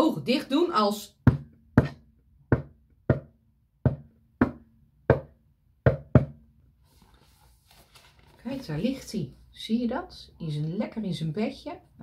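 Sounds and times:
knocking on hard surface: 1.2 - 6.4.

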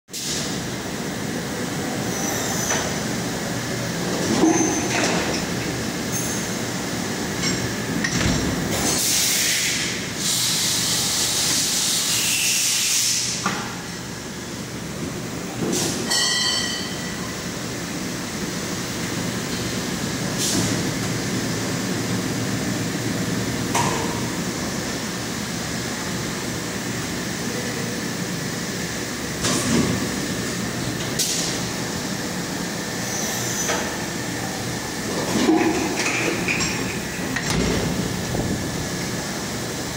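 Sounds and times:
short machine hisses: 9.0 - 13.4.

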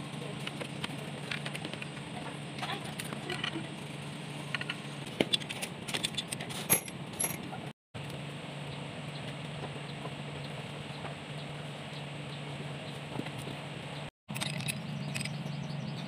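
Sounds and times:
metallic clicks of hand tools: 14.3 - 15.4.

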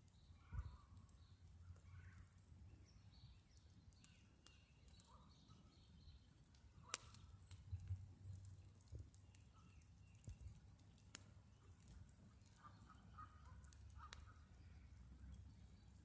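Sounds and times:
wood fire crackling: 0.0 - 16.0
faint bird calls: 12.4 - 15.0.

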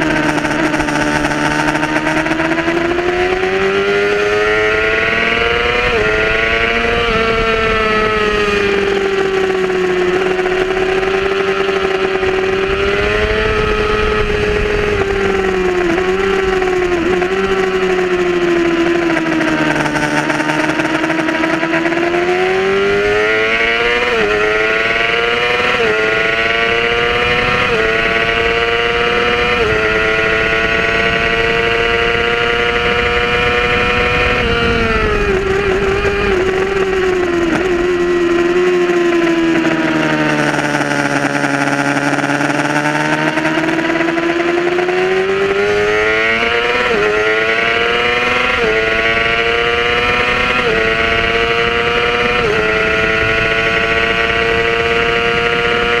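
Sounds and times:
motorcycle engine revving: 0.0 - 56.0
wind rush: 2.4 - 9.4, 11.9 - 19.7, 26.2 - 40.4.

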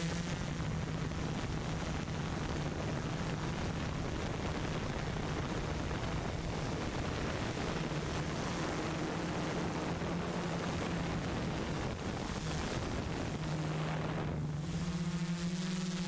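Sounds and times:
drone motors and propellers humming: 0.0 - 16.0.

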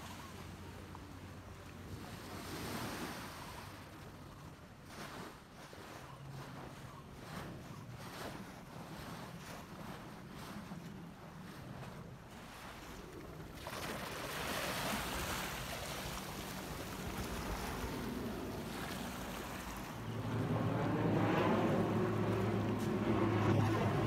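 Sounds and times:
low engine hum: 0.0 - 24.0
aircraft rushing drone: 14.9 - 24.0.

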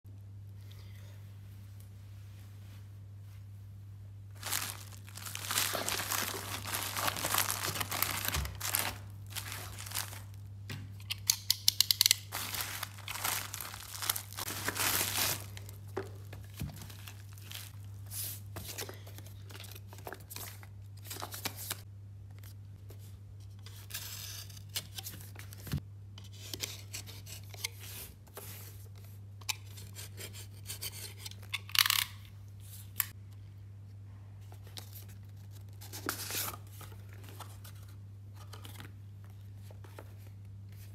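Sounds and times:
cardboard box handling: 4.4 - 10.3, 12.3 - 17.7
plastic bag tearing and crinkling: 4.4 - 10.5, 12.2 - 15.8, 16.7 - 17.8.

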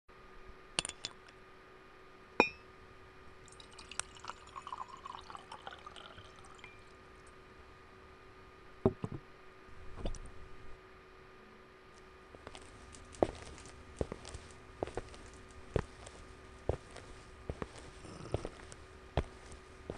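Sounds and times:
ceramic mug clink: 2.4 - 2.6.

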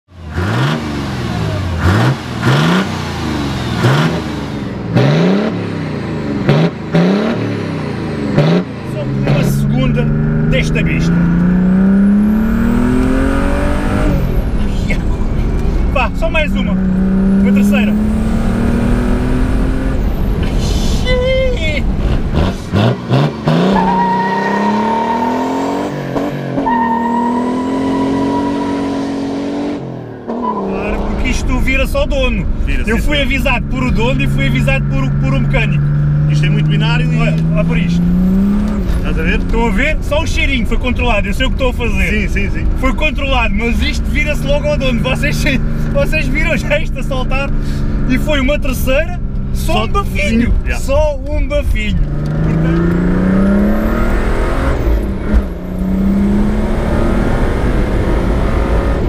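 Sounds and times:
diesel engine revving: 0.1 - 59.0
exhaust blast: 0.2 - 59.0.

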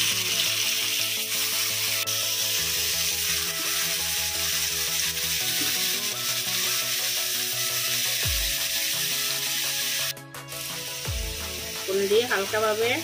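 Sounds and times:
cheese sizzling in hot oil: 0.0 - 13.0
music with pulsing beat: 8.2 - 9.2, 10.1 - 12.2.

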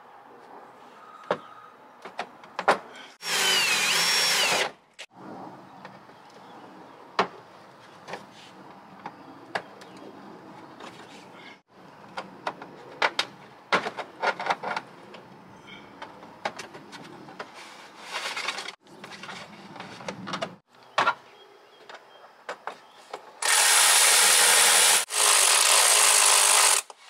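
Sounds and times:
rustling scrape: 17.5 - 20.2.

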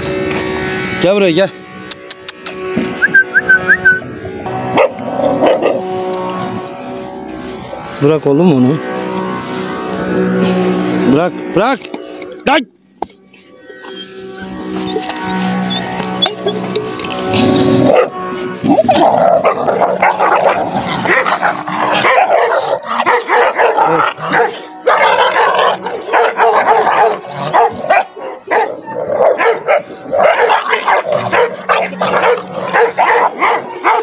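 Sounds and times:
puppies barking and yipping: 1.9 - 7.0, 13.1 - 34.0.

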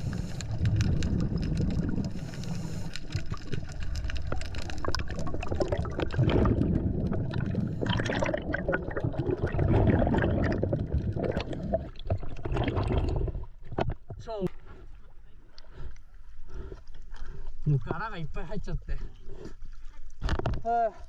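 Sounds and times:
bubbly clicks: 0.0 - 14.2
water gurgling and sloshing: 0.0 - 21.0.

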